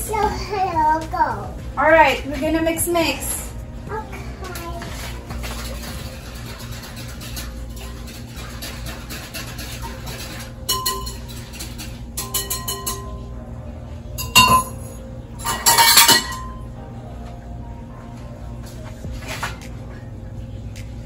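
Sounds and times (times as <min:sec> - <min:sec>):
dishes clattering: 0:04.6 - 0:13.3, 0:14.2 - 0:16.7
utensils clinking against glass bowls: 0:05.3 - 0:13.3, 0:14.2 - 0:16.6.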